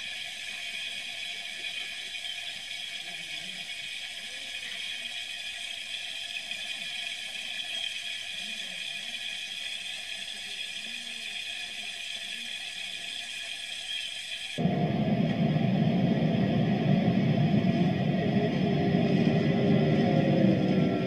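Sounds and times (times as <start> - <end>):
water spraying from spigot: 0.0 - 14.6.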